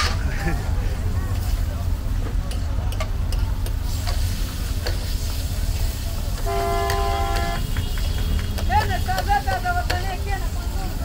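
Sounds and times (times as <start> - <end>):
vehicle horn: 6.4 - 9.2.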